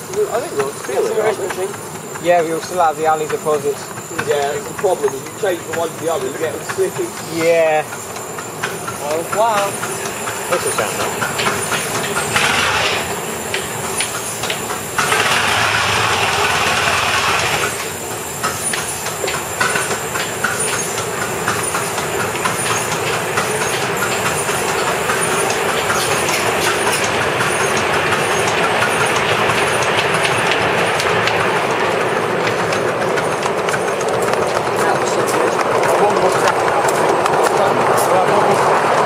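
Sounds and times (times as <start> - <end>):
rush of steam: 0.0 - 39.0
wheels clicking on rails: 0.0 - 39.0.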